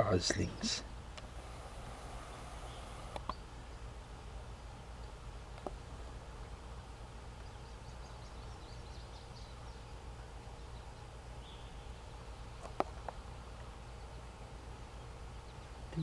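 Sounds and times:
low background rumble: 0.0 - 16.0
bird chirps: 1.5 - 3.5, 7.4 - 12.8
sharp clicks: 2.6 - 3.4.

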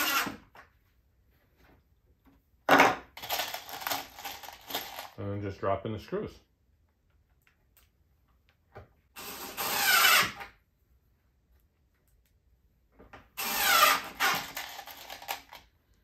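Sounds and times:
cordless drill whining: 0.0 - 0.4, 9.2 - 10.5, 13.4 - 15.6.

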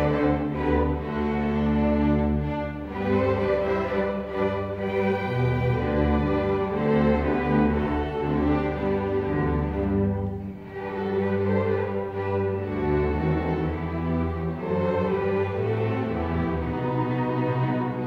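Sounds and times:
string orchestra playing held notes: 0.0 - 18.0.

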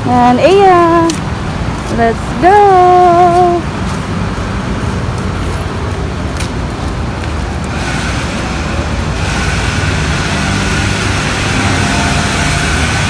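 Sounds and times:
low rumble of road vehicles: 0.0 - 13.0
faint high tone: 11.5 - 13.0.

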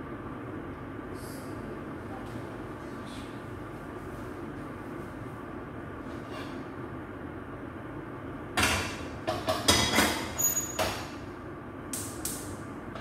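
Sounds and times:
high metallic ring: 10.4 - 10.8.

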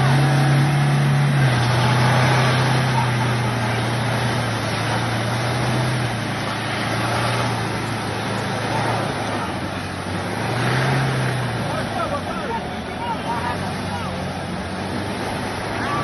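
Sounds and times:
van engine revving: 0.0 - 16.0.

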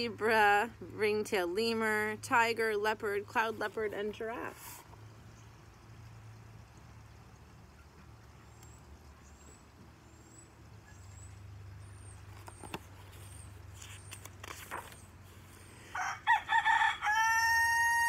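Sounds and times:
bird chirping: 5.2 - 14.1
page turning: 12.3 - 15.6.

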